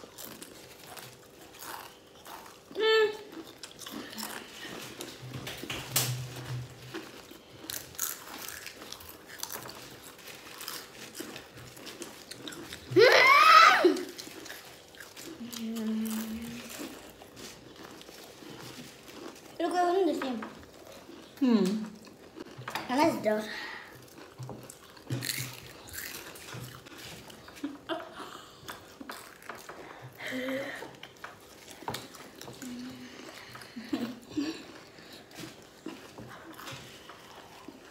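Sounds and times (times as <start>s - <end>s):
chewing crunchy chips: 0.0s - 37.9s
high-pitched wordless vocal cry: 12.9s - 14.2s.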